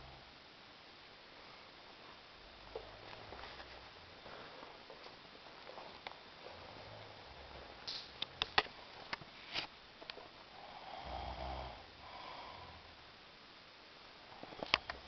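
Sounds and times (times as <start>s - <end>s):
man snoring: 10.6s - 13.0s.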